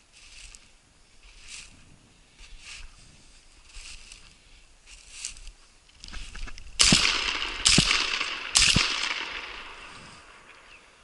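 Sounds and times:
shotgun shots echoing: 6.8 - 10.7.

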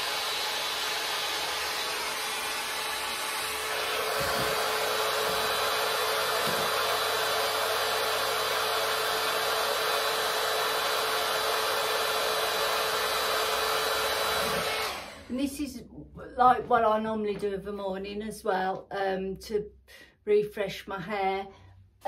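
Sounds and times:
hot air brush fan blowing: 0.0 - 15.4.

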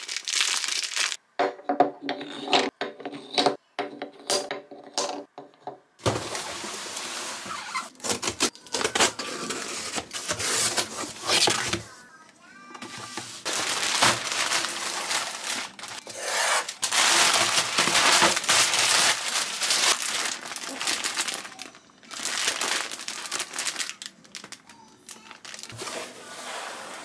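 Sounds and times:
plastic bag crinkling: 0.0 - 1.2, 13.0 - 25.9.

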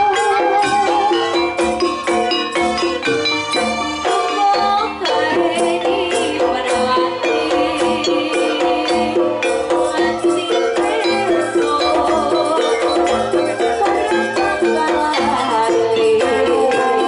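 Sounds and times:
drum and percussion strokes: 0.0 - 17.0
rattling jingling percussion: 0.0 - 17.0
repeating pitched pattern: 4.9 - 17.0.

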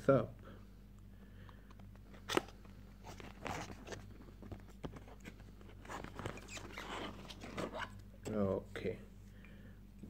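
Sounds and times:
cardboard scraping and rustling: 3.0 - 8.0.

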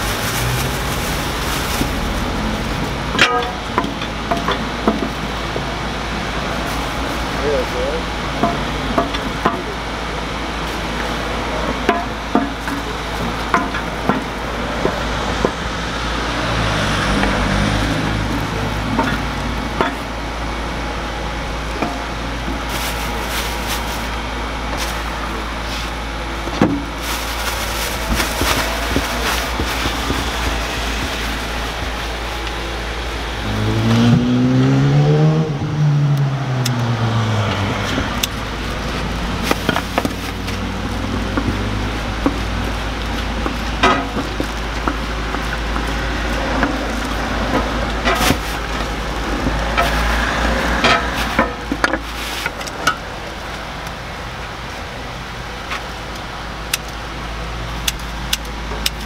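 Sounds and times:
plastic bag crinkling: 0.0 - 3.0, 22.5 - 24.2, 24.8 - 26.0, 26.7 - 33.1, 38.1 - 53.6
vehicle passing by: 0.0 - 3.6, 14.5 - 19.6, 33.0 - 43.4, 45.3 - 51.5.

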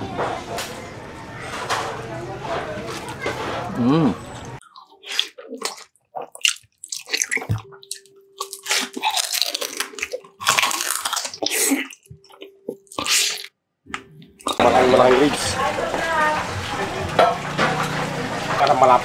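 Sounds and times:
chewing and crunching food: 2.9 - 14.7.

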